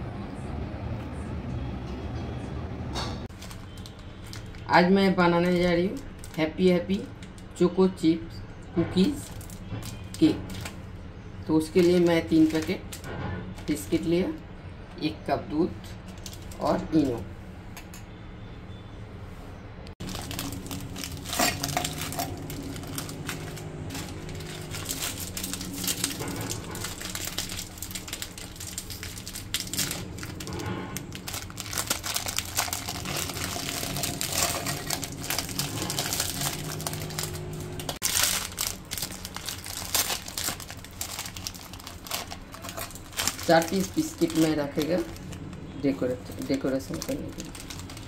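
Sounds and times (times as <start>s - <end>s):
plastic wrappers crinkling: 3.3s - 7.6s, 9.0s - 11.0s, 11.6s - 14.4s, 15.8s - 16.8s, 20.0s - 48.0s.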